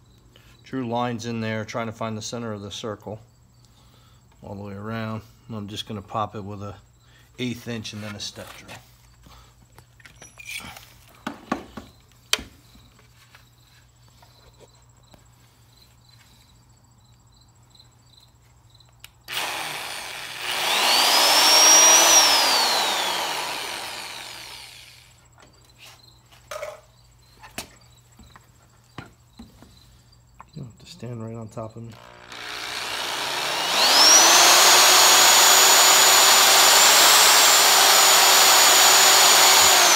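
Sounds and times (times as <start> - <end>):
electric drill whine: 19.3 - 25.2, 31.9 - 39.9.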